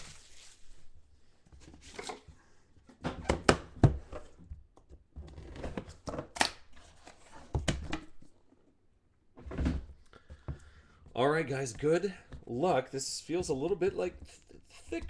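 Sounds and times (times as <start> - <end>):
plastic shrink-wrap crinkling: 0.0 - 0.8.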